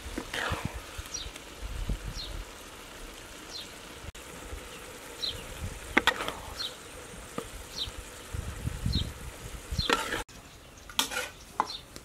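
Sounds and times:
bird chirping: 3.5s - 3.8s, 4.7s - 5.6s, 6.5s - 7.1s, 7.7s - 9.1s, 9.7s - 11.9s.

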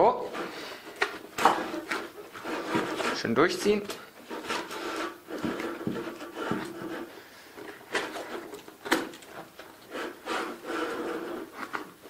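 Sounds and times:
nylon strap rubbing through webbing: 0.0s - 7.2s, 9.9s - 11.9s.

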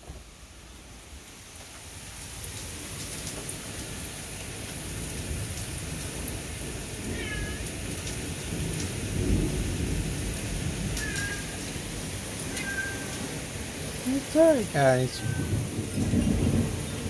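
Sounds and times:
steady rain: 0.0s - 17.0s
cat meowing: 7.1s - 7.7s
thunder rumbling: 8.2s - 17.0s.

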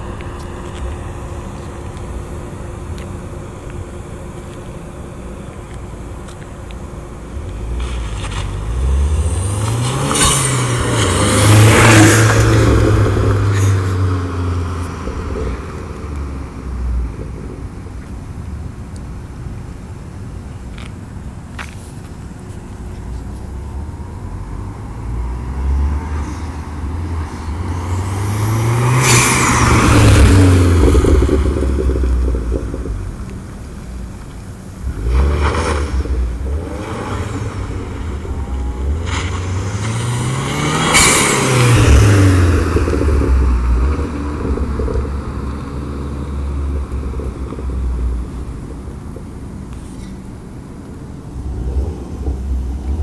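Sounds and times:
car engine flyby: 7.2s - 18.0s, 22.6s - 53.0s.

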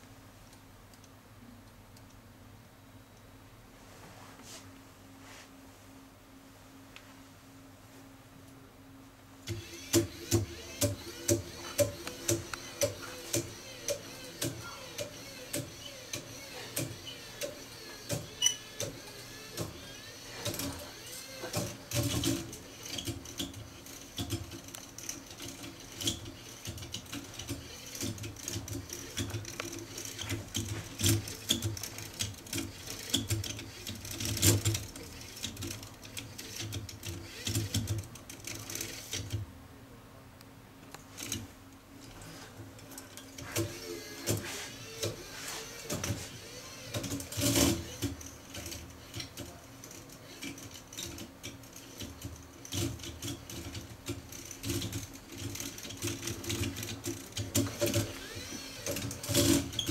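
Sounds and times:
electric motor whirring: 9.4s - 39.3s, 43.4s - 50.7s, 54.3s - 59.9s
mechanism clicking and knocking: 9.4s - 39.4s, 43.0s - 59.9s.

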